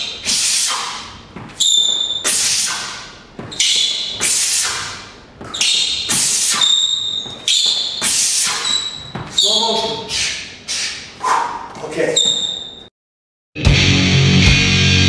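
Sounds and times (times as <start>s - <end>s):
sharp hissing exhales: 0.2s - 1.0s, 2.3s - 3.0s, 4.2s - 5.0s, 8.0s - 8.8s, 10.1s - 11.1s.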